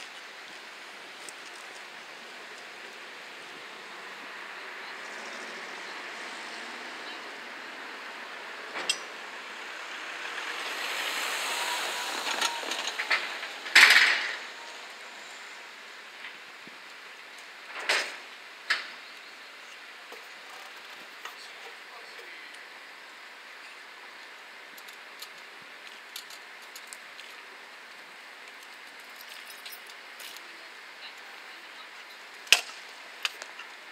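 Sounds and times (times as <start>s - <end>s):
car tyres on road passing: 0.0s - 19.1s
steady background hiss: 0.0s - 33.9s.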